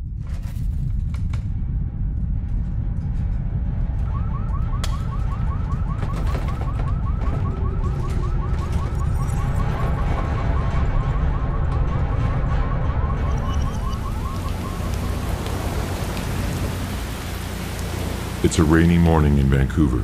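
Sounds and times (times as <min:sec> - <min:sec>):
deep earthquake rumble: 0:00.0 - 0:20.0
cracks and rattles: 0:00.1 - 0:18.2
car alarm whooping: 0:04.0 - 0:18.2.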